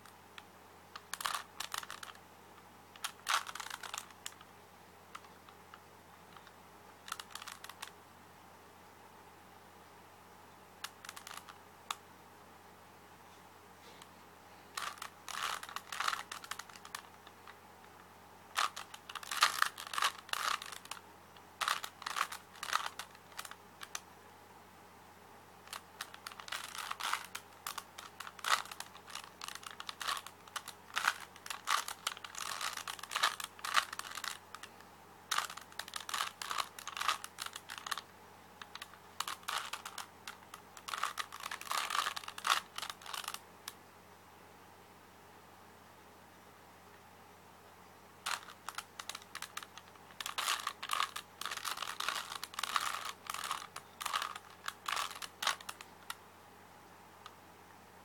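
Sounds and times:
puzzle cube clicking: 1.0s - 2.2s, 3.0s - 4.4s, 6.4s - 7.9s, 10.8s - 12.0s, 14.7s - 17.4s, 18.6s - 21.0s, 21.6s - 24.0s, 25.7s - 34.7s, 35.3s - 38.0s, 38.6s - 43.4s, 48.3s - 56.2s.

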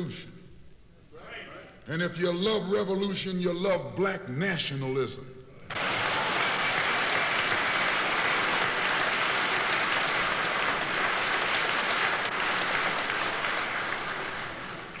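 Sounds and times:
audience applauding: 5.7s - 15.0s.

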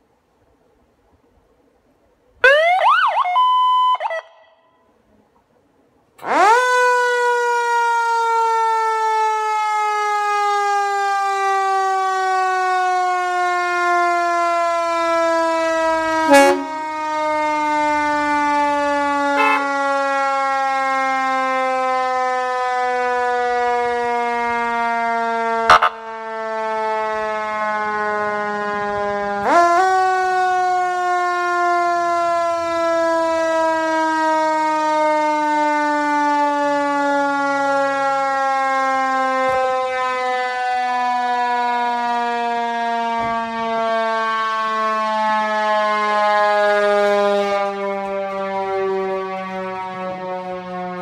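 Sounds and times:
mechanical siren wail: 2.4s - 4.9s, 6.2s - 51.0s
electronic siren sweeps: 15.6s - 19.9s, 25.6s - 26.1s.

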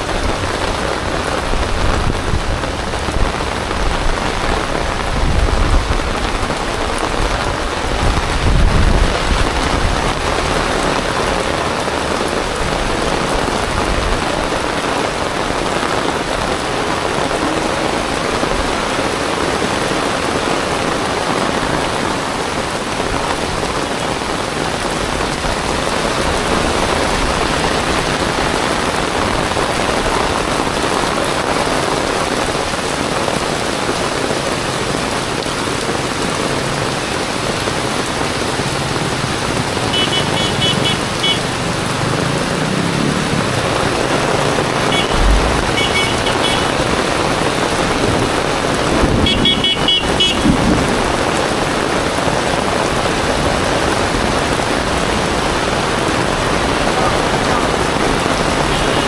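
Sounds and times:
heavy rain on street: 0.0s - 59.0s
vehicle engine rumbling: 38.1s - 51.6s.

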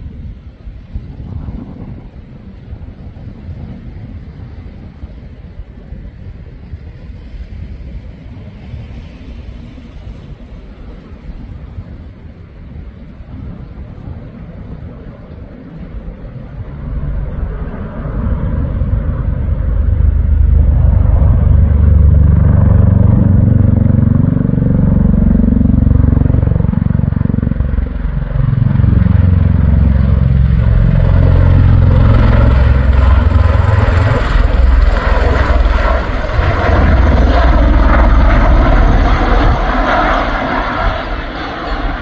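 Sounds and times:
aircraft rotors and engines overhead: 0.0s - 42.0s.

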